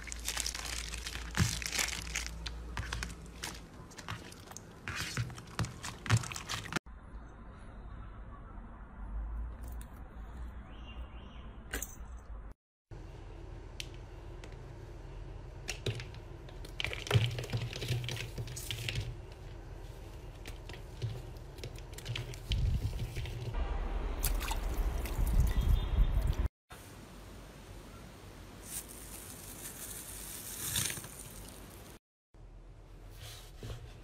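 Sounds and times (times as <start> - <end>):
hands squishing slime: 0.0 - 6.8.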